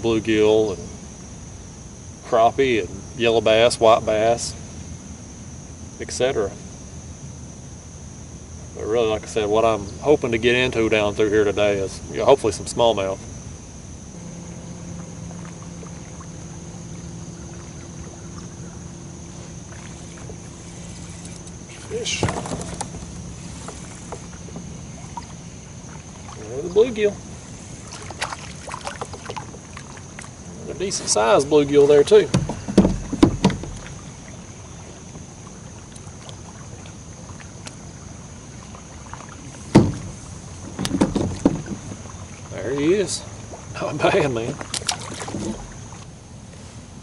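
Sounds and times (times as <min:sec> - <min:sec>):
faint low hum: 0:00.0 - 0:47.0
insect drone: 0:00.0 - 0:47.0
low steady hiss: 0:00.0 - 0:47.0
faint ticks: 0:19.7 - 0:21.7, 0:35.2 - 0:37.8
sharp thump: 0:22.0 - 0:24.7, 0:39.7 - 0:40.2
light clicks and knocks: 0:32.3 - 0:34.0.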